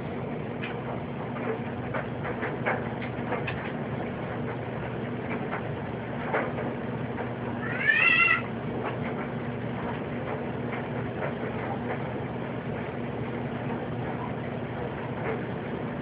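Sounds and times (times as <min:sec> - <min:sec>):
steady low hum: 0:00.0 - 0:16.0
meow-like animal call: 0:07.6 - 0:08.5.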